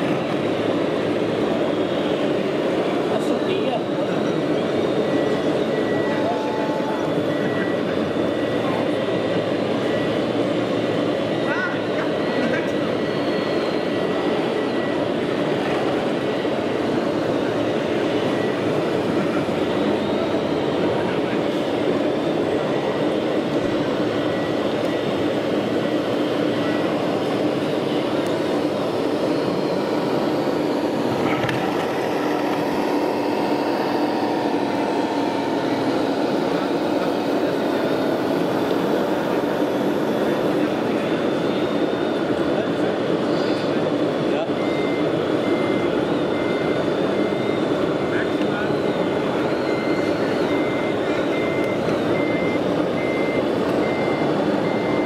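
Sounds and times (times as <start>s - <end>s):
faint high whine: 0.0s - 55.0s
toy machines engine-like drone: 0.0s - 55.0s
exhibition hall din: 13.9s - 55.0s.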